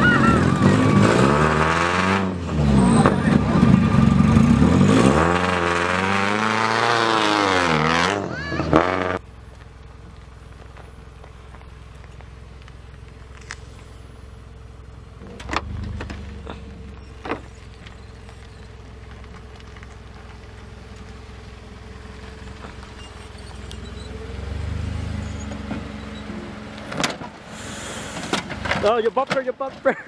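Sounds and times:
car engine running: 0.0 - 29.0.

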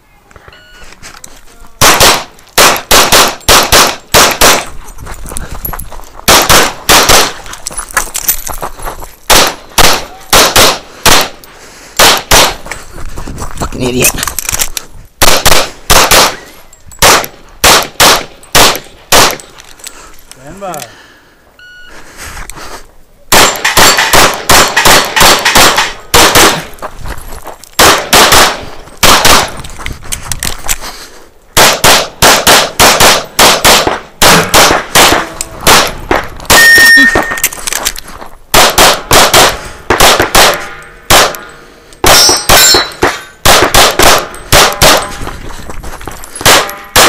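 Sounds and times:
pistol shots: 1.8 - 4.7, 6.3 - 7.4, 9.3 - 11.4, 12.0 - 12.6, 15.2 - 19.4, 23.3 - 26.7, 27.8 - 29.5, 31.6 - 37.5, 38.5 - 45.2, 46.4 - 47.0
steel targets clanging: 40.6 - 43.4.

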